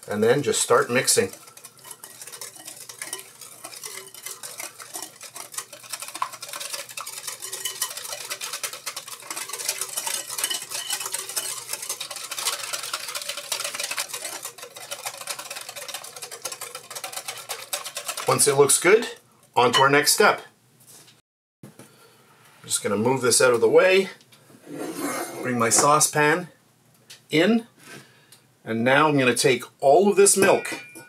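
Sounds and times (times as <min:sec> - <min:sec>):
whisk scraping glass bowl: 0:00.0 - 0:19.2.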